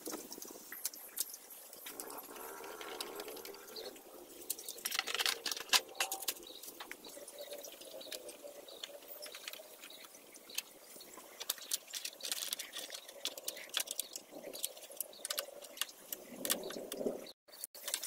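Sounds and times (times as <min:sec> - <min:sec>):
plastic panels being handled: 0:04.4 - 0:17.1.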